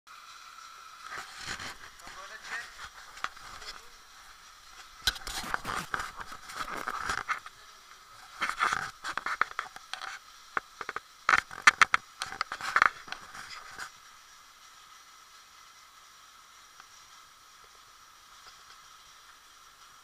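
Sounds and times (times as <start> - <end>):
scraping and rustling: 1.0 - 14.0.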